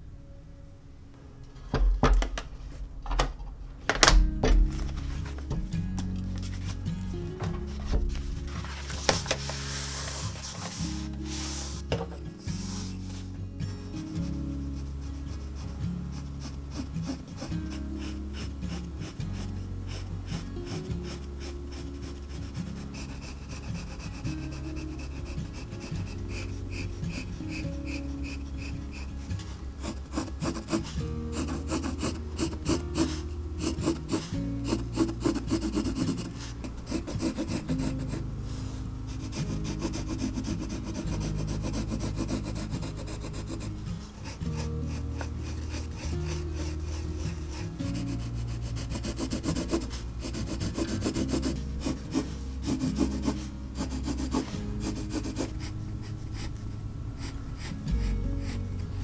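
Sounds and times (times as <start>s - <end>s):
soft background music: 0.0s - 59.0s
pencil scratching on paper: 14.0s - 59.0s.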